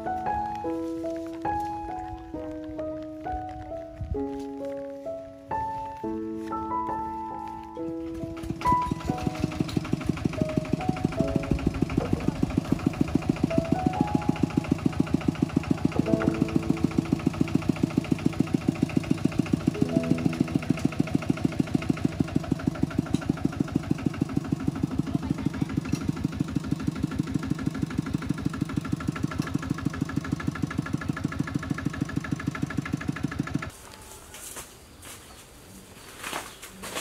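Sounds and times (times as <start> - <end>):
diesel engine running: 6.8 - 33.7.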